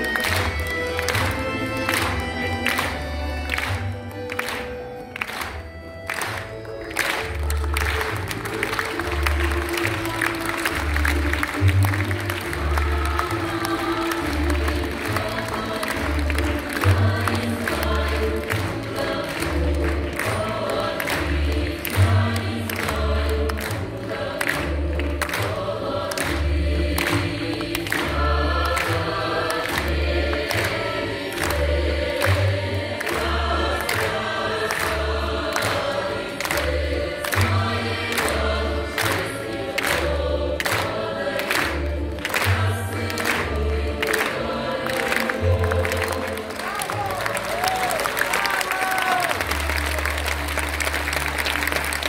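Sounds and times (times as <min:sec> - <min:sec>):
choir singing: 0:07.3 - 0:47.0.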